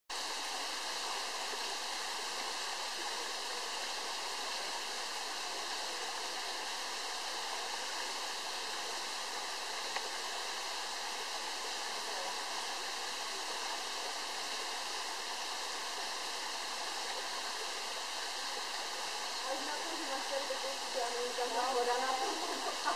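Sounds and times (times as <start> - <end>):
waterfall rushing: 16.1 - 22.9.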